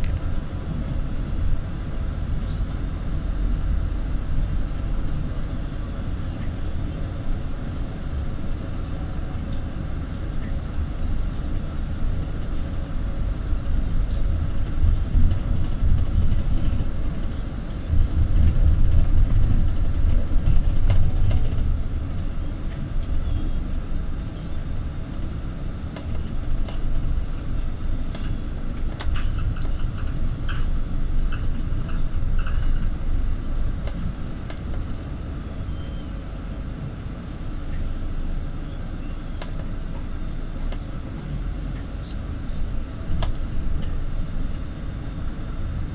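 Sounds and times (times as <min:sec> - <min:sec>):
vehicle engine and road rumble: 0:00.0 - 0:45.9.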